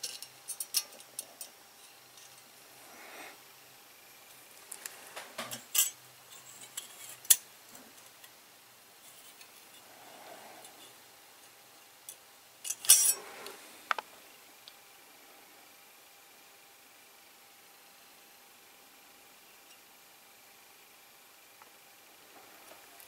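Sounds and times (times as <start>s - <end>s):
hand tools clinking on metal: 12.6s - 13.2s.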